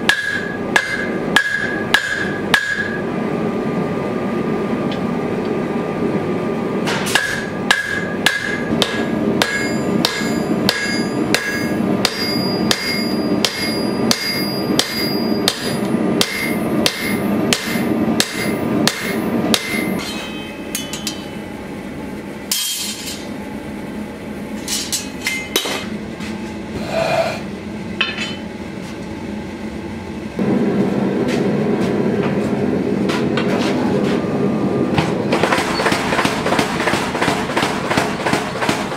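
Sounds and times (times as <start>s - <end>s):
hammer striking blade on anvil: 0.0s - 3.0s, 6.9s - 21.4s, 22.5s - 23.2s
machine hum: 0.0s - 38.9s.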